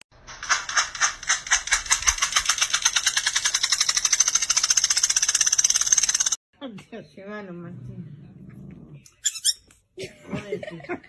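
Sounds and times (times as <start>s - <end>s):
fast rhythmic rattling: 0.4s - 6.4s.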